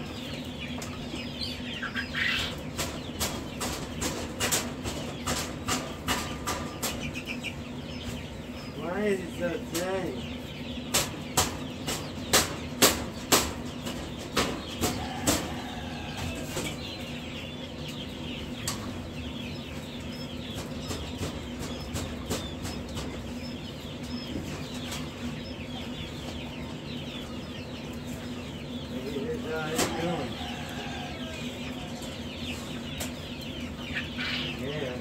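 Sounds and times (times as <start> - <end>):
chicks peeping: 0.0 - 35.0
sharp knocks of cages: 2.1 - 7.5, 10.8 - 18.0, 18.6 - 25.4, 29.5 - 30.4.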